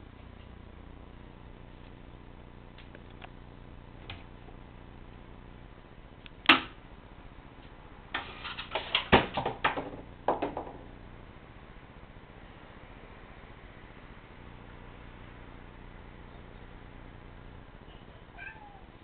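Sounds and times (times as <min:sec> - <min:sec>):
wooden knocks and clatter: 0:08.2 - 0:10.9.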